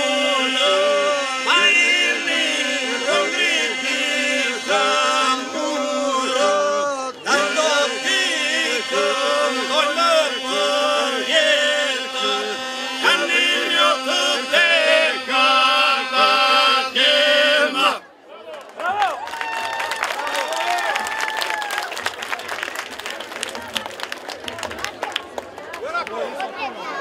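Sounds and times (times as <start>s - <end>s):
men singing a cappella: 0.0s - 18.0s.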